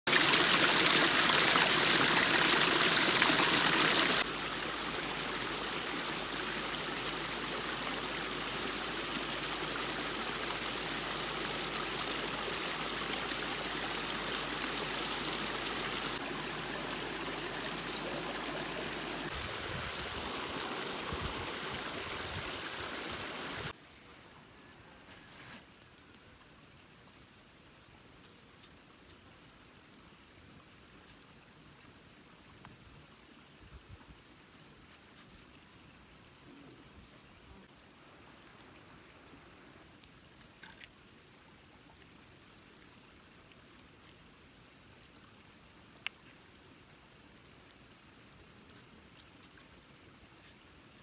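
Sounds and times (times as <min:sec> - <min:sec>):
water trickling over rocks: 0:00.1 - 0:23.7.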